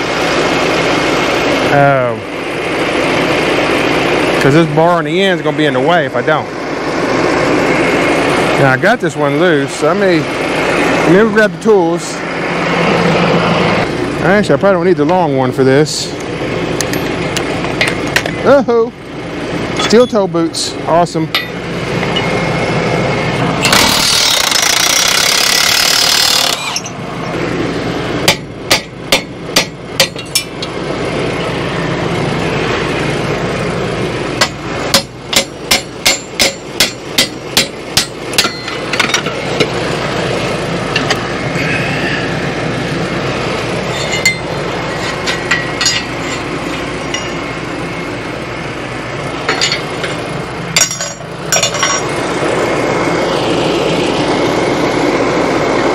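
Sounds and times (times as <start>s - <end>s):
loud rushing noise: 6.2s - 14.4s
hammer striking metal: 21.3s - 21.6s, 28.3s - 30.6s, 34.4s - 39.4s, 47.1s - 47.4s, 50.8s - 52.0s.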